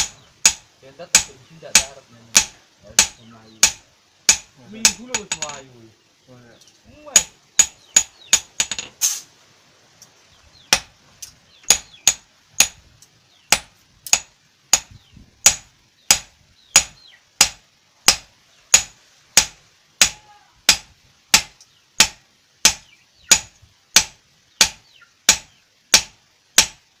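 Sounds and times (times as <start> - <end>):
hammer striking steel on anvil: 0.0 - 5.6.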